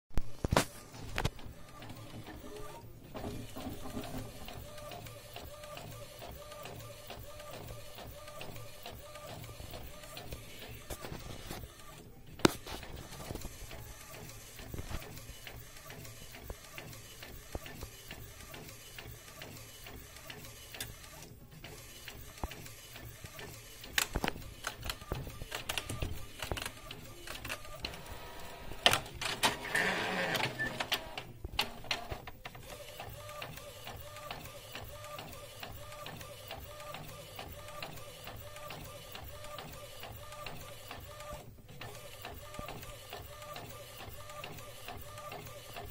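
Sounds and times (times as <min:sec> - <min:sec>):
inkjet printer carriage whirring: 0:00.5 - 0:45.9
printer clicks: 0:22.4 - 0:45.9.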